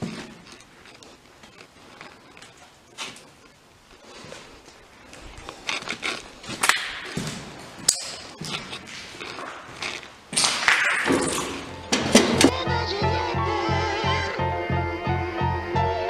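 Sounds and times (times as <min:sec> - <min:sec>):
knocks taps and scuffs: 0:04.2 - 0:12.5
background music: 0:11.3 - 0:16.0.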